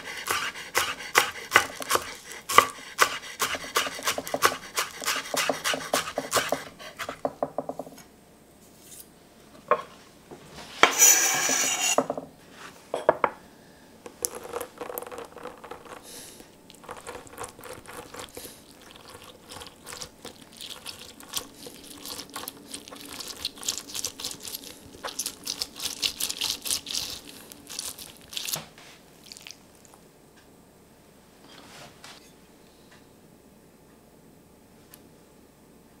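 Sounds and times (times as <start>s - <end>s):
knife chopping on wooden board: 0.3s - 7.8s.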